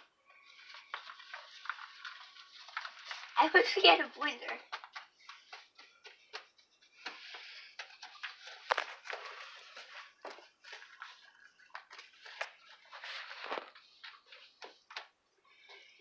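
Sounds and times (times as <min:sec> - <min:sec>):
plastic spoon scraping bowl: 0:04.0 - 0:15.0.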